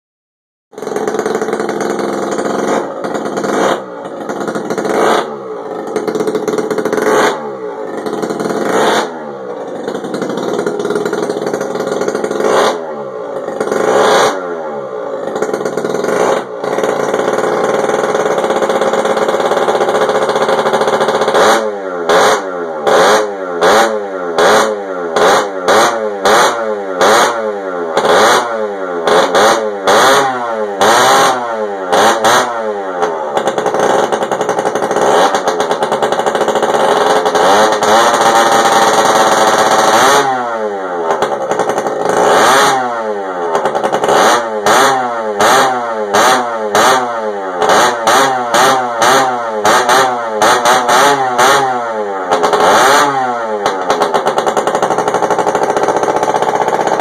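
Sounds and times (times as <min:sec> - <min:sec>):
scooter engine revving: 0:00.7 - 0:57.0.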